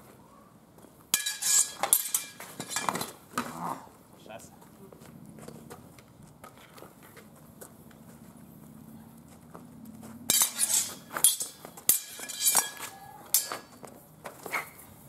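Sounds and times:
swords clashing metallic clanks: 1.1s - 3.2s, 10.3s - 13.8s.

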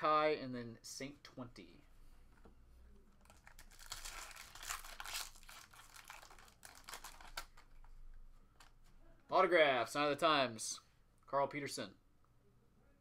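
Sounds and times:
foil wrapper tearing and crinkling: 3.2s - 7.6s.

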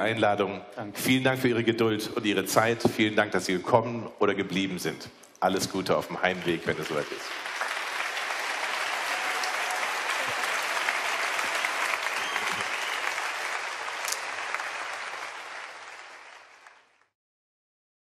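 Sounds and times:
audience applauding: 6.2s - 17.1s.

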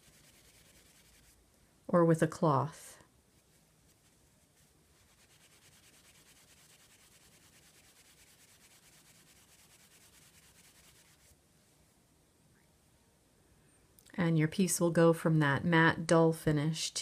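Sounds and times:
cloth rubbing on clay: 0.0s - 1.4s, 3.3s - 11.8s.

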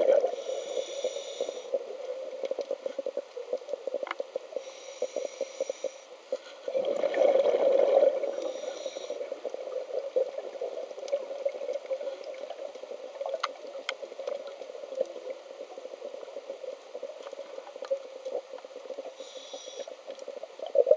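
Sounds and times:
muffled underwater crackle and fizz: 0.0s - 20.9s
rush of bubbles: 6.7s - 8.5s
small clicks: 12.3s - 15.2s.

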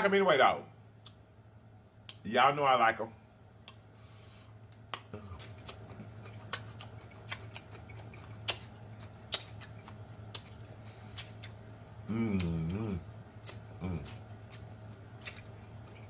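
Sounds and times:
faint low hum: 0.0s - 16.0s
cucumber crunching: 4.7s - 16.0s.

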